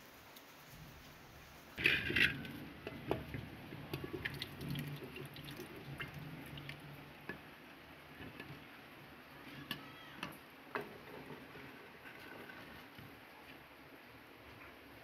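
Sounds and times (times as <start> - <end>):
scraping off a plate: 1.8 - 4.4.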